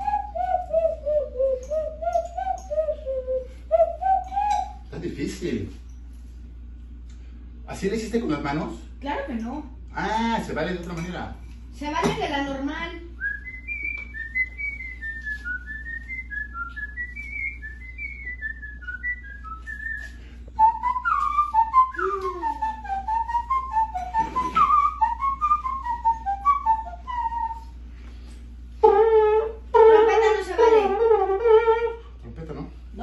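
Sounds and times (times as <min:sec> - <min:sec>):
man whistling a melody: 0:00.0 - 0:04.9, 0:13.2 - 0:29.6.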